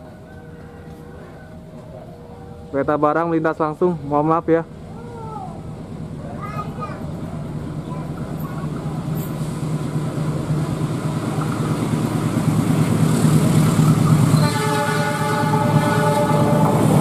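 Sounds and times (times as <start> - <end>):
locomotive engine drone: 0.0 - 17.0
multi-tone train horn: 14.3 - 17.0.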